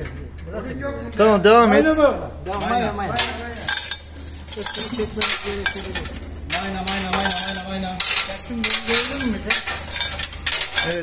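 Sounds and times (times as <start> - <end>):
low machinery hum: 0.0 - 11.0
metal clinks and scrapes: 2.5 - 11.0.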